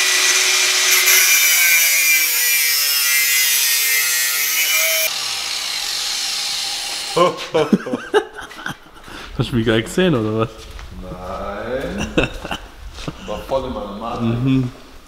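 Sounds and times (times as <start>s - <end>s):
angle grinder cutting metal pipe: 0.0s - 7.2s.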